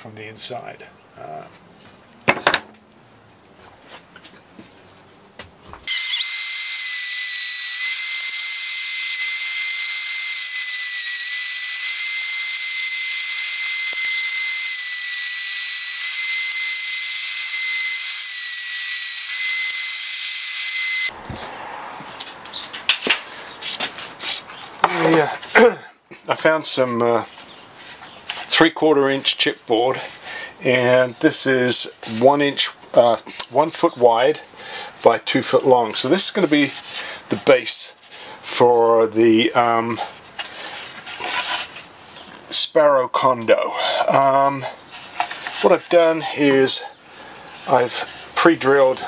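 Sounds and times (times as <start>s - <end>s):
wood knocking: 2.3s - 2.8s
wood router whining: 5.8s - 22.4s.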